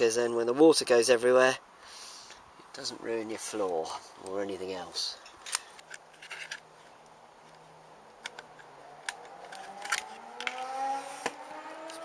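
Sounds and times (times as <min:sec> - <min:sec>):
faint hum rising in pitch: 0:07.1 - 0:12.0.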